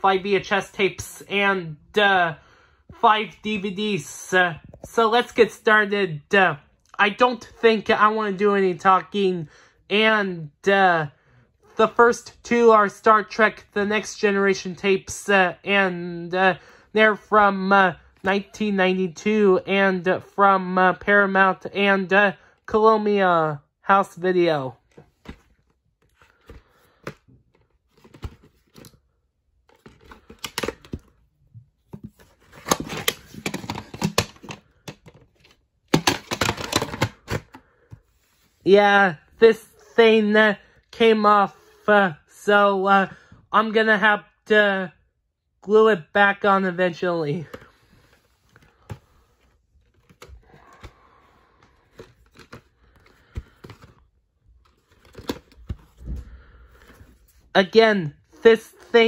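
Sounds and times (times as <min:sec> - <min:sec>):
plastic cassette case clicks and scrapes: 0:29.7 - 0:31.1, 0:32.0 - 0:37.6, 0:51.7 - 0:54.0.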